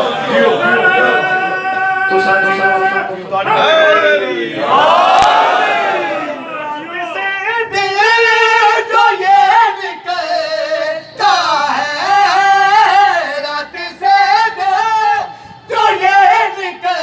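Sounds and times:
men singing: 7.0 - 17.0.

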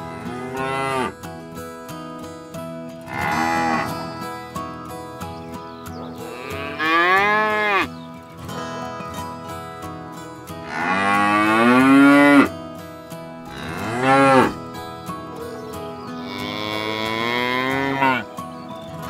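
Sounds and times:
cattle mooing: 0.0 - 1.2, 3.1 - 3.9, 6.3 - 7.9, 10.6 - 12.5, 13.5 - 14.6, 16.2 - 18.3.

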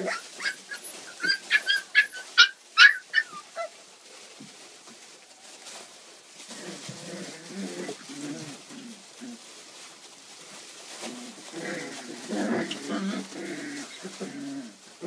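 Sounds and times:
puppies yelping and whimpering: 0.0 - 3.8.

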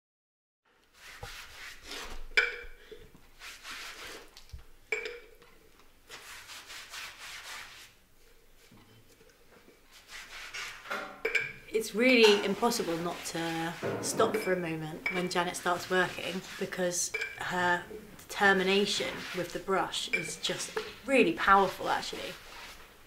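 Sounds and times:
paintbrush scratching on canvas: 0.9 - 2.3, 3.4 - 4.3, 6.1 - 8.0, 9.9 - 10.9, 12.2 - 17.0, 18.4 - 22.9
brush knocking glass jar: 12.2 - 15.9.

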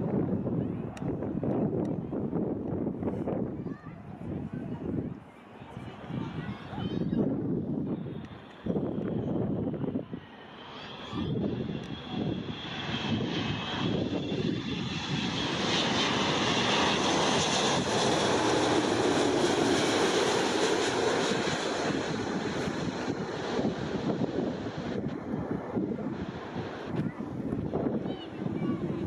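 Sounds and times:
jet engines roaring overhead: 0.0 - 29.0
high jet whine: 5.8 - 29.0.

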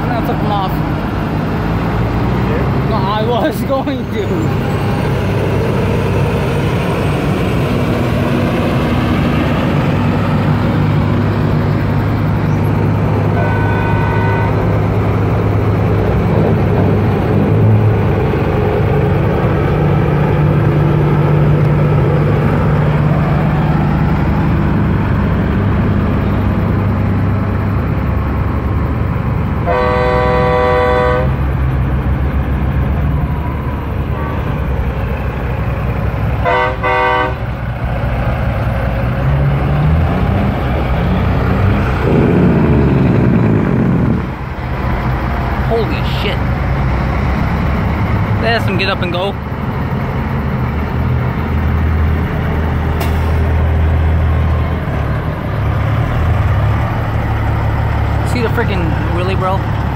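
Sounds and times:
diesel truck engines droning: 0.0 - 59.9
truck air horn: 13.3 - 14.7, 29.6 - 31.4, 36.4 - 37.6.

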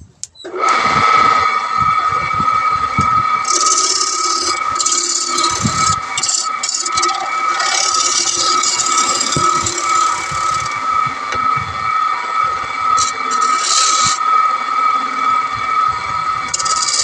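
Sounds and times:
wood lathe whine: 0.4 - 17.0
turning tool scraping wood: 3.4 - 11.4, 12.9 - 14.2, 16.5 - 17.0.

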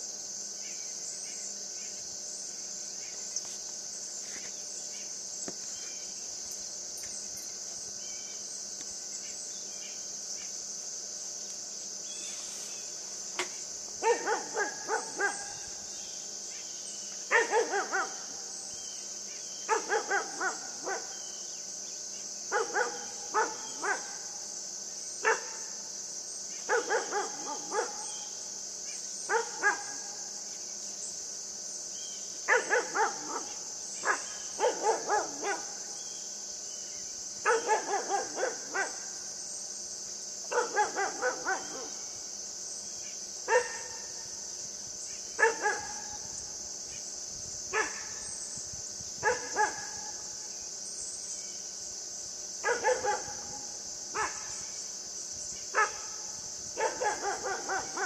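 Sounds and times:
high insect hum: 0.0 - 58.0
puppy barking: 14.0 - 15.5, 17.3 - 18.3, 19.7 - 21.1, 22.5 - 24.1, 26.7 - 28.1, 29.3 - 30.0, 32.5 - 35.7, 37.5 - 39.0, 40.5 - 41.9, 43.5 - 43.9, 45.4 - 46.0, 49.2 - 49.9, 52.6 - 53.5, 56.8 - 58.0.

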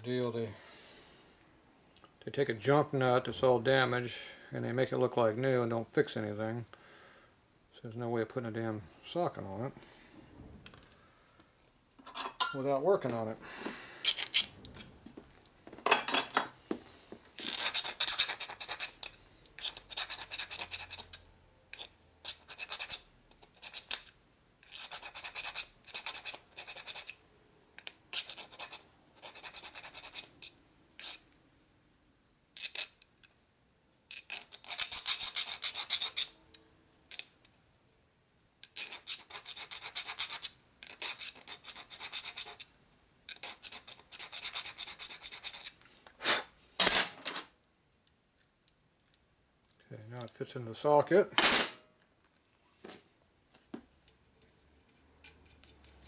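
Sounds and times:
file rasping on metal: 17.4 - 23.0, 34.6 - 36.4.

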